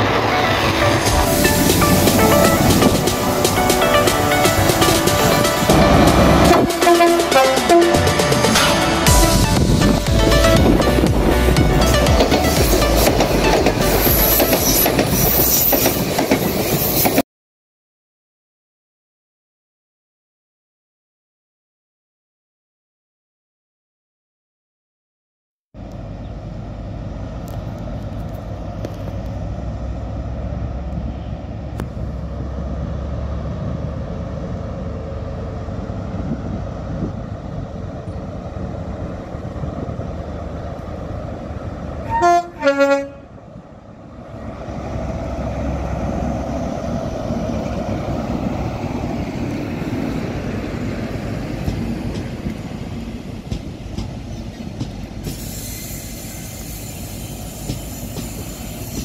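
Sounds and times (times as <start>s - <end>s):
train horn blasts: 0.0s - 14.9s, 42.0s - 43.4s
diesel train engine running: 0.0s - 17.1s, 25.8s - 59.0s
rail and wheel noise: 0.0s - 17.2s, 25.8s - 59.0s.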